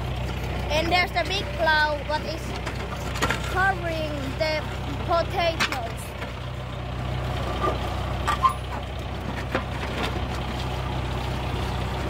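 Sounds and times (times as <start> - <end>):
tractor engine running: 0.0 - 12.0
stones knocking on metal plow: 2.4 - 3.8.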